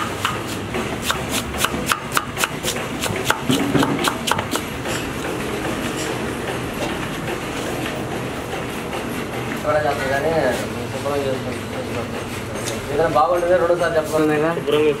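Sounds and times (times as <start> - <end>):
knife chopping on wooden board: 0.0 - 4.7
steady background noise: 0.0 - 15.0.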